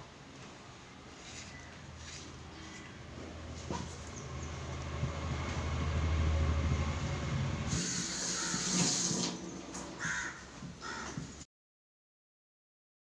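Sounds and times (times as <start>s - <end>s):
air buffeting microphone: 1.2s - 7.9s
water running from tap: 7.7s - 9.5s.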